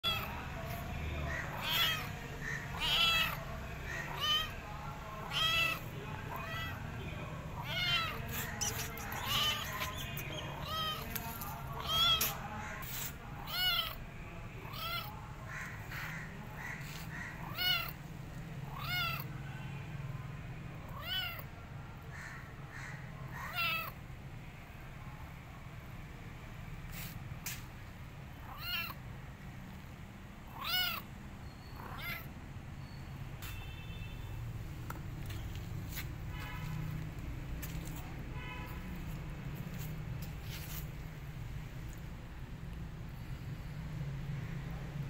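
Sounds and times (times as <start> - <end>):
kitten meowing: 0.0 - 0.4, 1.3 - 3.4, 4.0 - 4.6, 5.2 - 6.8, 7.6 - 11.2, 11.8 - 12.5, 13.4 - 14.0, 14.6 - 15.1, 17.3 - 18.0, 18.7 - 19.3, 20.9 - 21.5, 23.4 - 24.0, 28.4 - 29.0, 30.5 - 31.1, 31.8 - 32.3.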